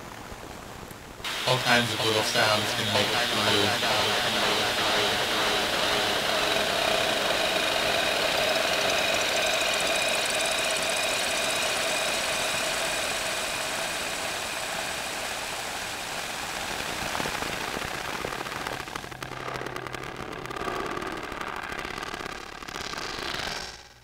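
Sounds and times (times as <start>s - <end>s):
thin rising synth sweeps: 1.3s - 15.4s
noisy electronic synthesizer texture: 1.3s - 15.5s.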